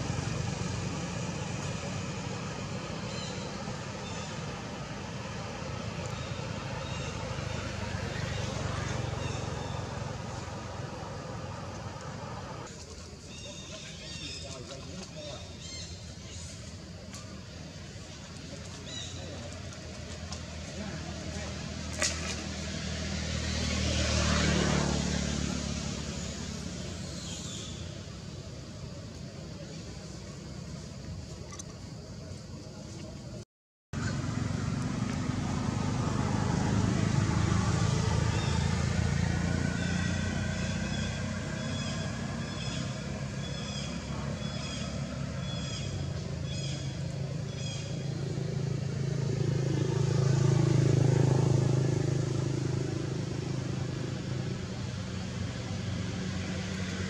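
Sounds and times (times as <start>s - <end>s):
motor vehicle passing by: 0.0s - 31.0s, 34.0s - 57.0s.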